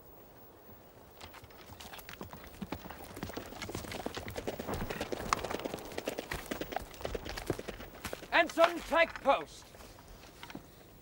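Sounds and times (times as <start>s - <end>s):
clopping footfalls on hard ground: 1.2s - 10.0s.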